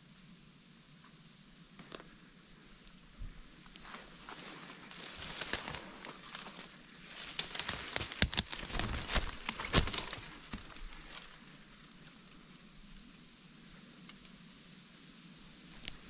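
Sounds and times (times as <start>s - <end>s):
twigs crackling: 2.8s - 13.2s
footsteps through dry leaves: 3.7s - 12.0s.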